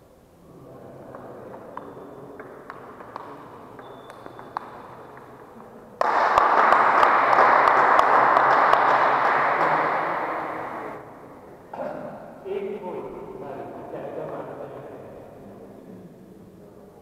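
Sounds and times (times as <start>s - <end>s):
crowd applause: 6.0s - 11.0s.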